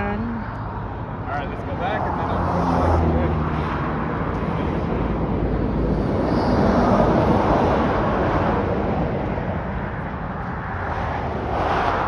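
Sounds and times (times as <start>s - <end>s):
highway traffic passing: 0.0s - 12.0s.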